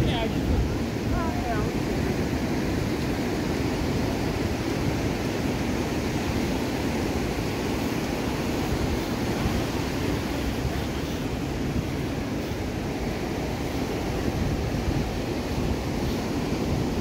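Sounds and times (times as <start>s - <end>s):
surf breaking on beach: 0.0s - 17.0s.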